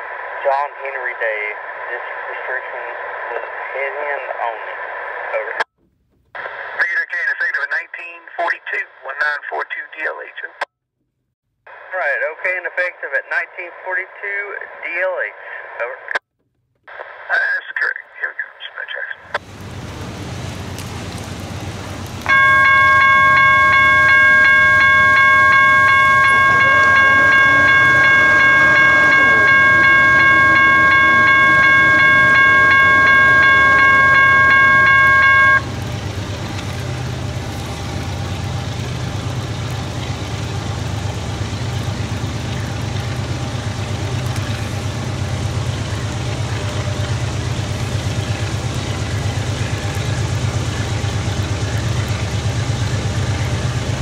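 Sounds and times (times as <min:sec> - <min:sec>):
diesel locomotive rumble: 0:19.4 - 0:54.0
locomotive air horn: 0:22.2 - 0:38.9.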